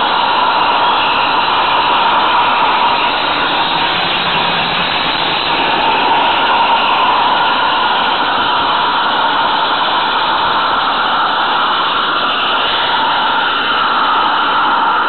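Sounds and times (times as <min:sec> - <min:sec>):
model train rumbling on track: 0:00.0 - 0:14.1.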